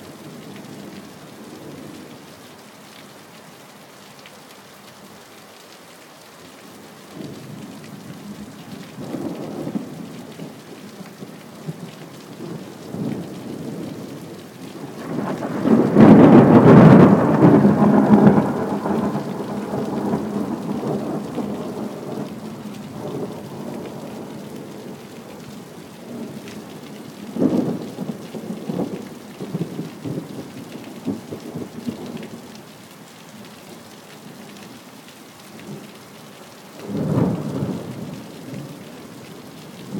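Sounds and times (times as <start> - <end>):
steady rain: 0.0 - 39.9
sharp thunder crack: 15.0 - 20.6
thunder rolling: 15.0 - 22.4.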